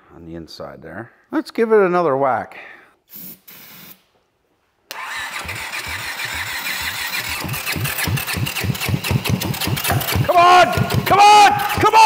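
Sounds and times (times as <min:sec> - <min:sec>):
motorcycle starter cranking engine: 0:04.9 - 0:11.9.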